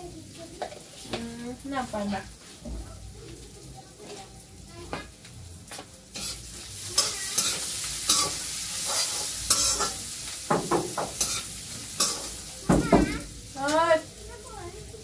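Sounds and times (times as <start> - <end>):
food sizzling in a wok: 0.0 - 15.0
metal spatula scraping a pan: 6.1 - 10.2, 10.9 - 12.6.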